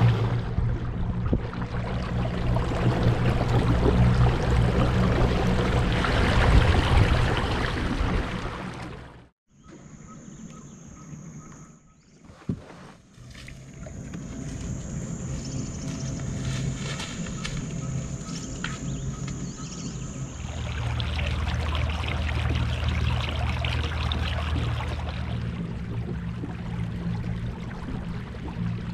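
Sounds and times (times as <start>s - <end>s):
kayak hull washing through waves: 0.0s - 9.1s
low rumble: 0.0s - 9.3s, 13.2s - 28.9s.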